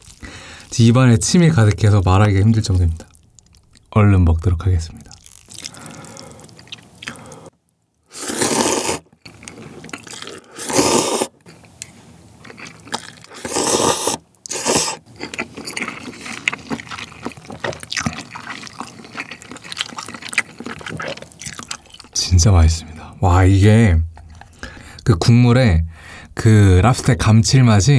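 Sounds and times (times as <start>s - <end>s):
wet chewing clicks: 2.0s - 3.9s, 5.0s - 7.5s, 11.4s - 22.2s
person slurping noodles: 8.1s - 11.4s, 13.0s - 15.0s.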